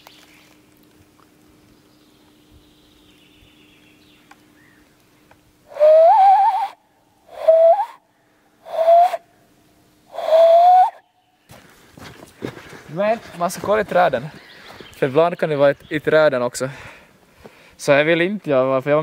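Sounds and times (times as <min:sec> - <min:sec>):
hand whistle notes sliding upward: 0:05.7 - 0:08.0, 0:08.7 - 0:09.2, 0:10.1 - 0:11.0.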